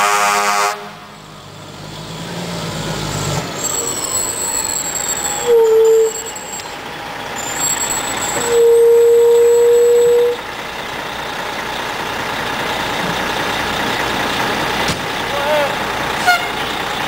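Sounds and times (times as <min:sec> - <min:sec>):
fire engine horn blasts: 0:00.0 - 0:01.2, 0:05.4 - 0:06.4, 0:07.4 - 0:10.5, 0:16.2 - 0:16.6
truck engine running: 0:00.8 - 0:17.0.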